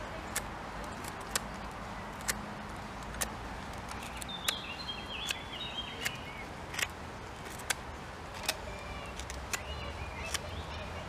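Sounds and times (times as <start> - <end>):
bird chirps: 4.0 - 6.5, 8.6 - 11.0.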